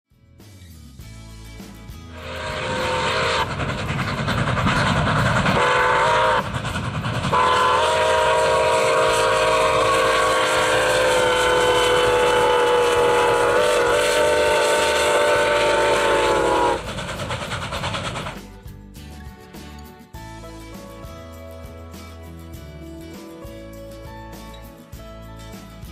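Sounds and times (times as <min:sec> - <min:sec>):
locomotive and train rumble: 0:01.7 - 0:18.8
steam locomotive whistle: 0:02.2 - 0:18.4.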